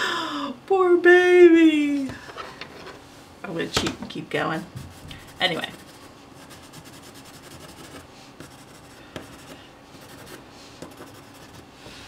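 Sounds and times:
pencil scratching on paper: 4.8s - 11.7s.

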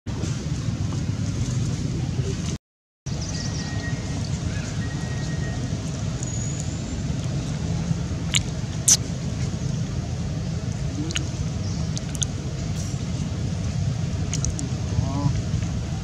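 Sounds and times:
steady low rumble: 0.1s - 16.0s.

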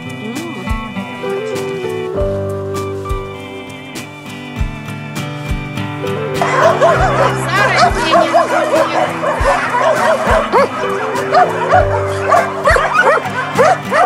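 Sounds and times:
background music: 0.0s - 14.0s
dogs barking and yipping: 6.1s - 14.0s.

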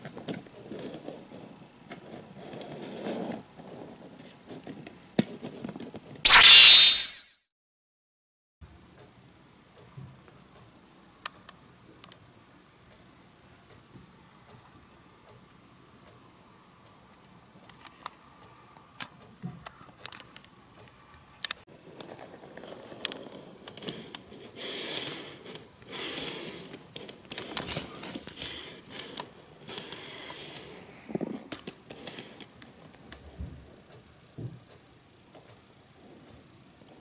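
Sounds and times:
model train car clicking on track: 19.0s - 30.9s, 31.5s - 33.2s.

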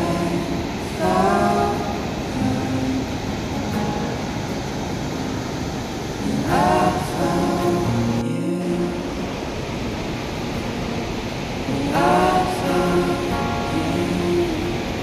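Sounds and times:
person singing: 0.0s - 3.9s, 6.2s - 9.6s, 11.6s - 15.0s
steady rushing noise: 0.0s - 15.0s.

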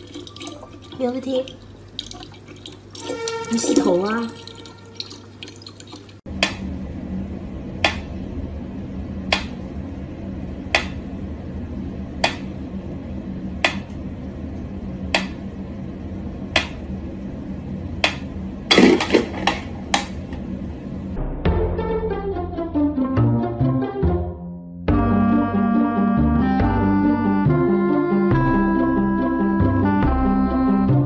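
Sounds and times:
low hum: 6.3s - 23.0s.

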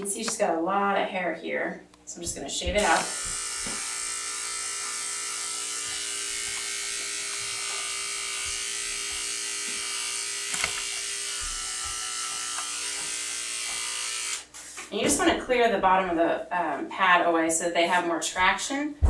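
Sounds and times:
electric clippers buzzing: 2.6s - 14.9s.

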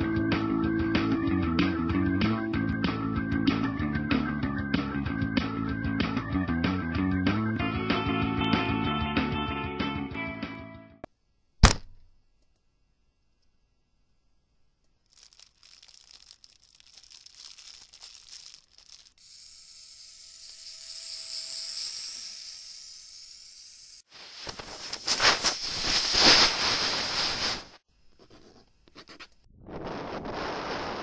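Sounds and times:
hissing crackling noise: 15.1s - 19.2s, 24.0s - 27.8s, 29.5s - 31.0s
smooth hiss: 20.9s - 27.8s.

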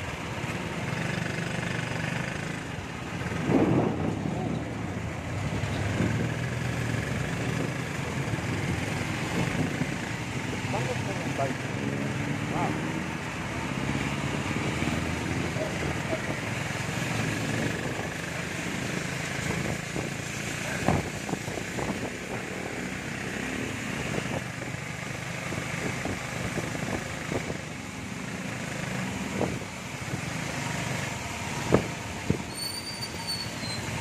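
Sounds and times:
tyres on wet road: 0.0s - 34.0s
high-pitched squeal: 32.5s - 34.0s.

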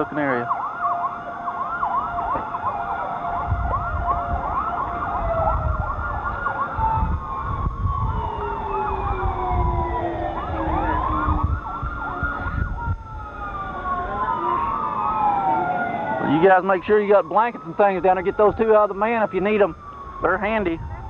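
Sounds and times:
emergency sirens wailing: 0.0s - 21.0s
low rumbling noise: 1.9s - 16.3s.

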